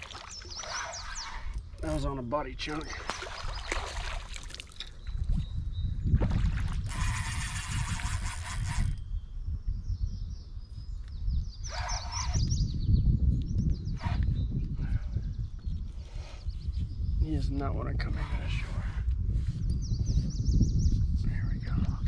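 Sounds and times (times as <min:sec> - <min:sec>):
wind rumbling on microphone: 0:00.0 - 0:22.0
fishing reel winding: 0:06.9 - 0:09.0.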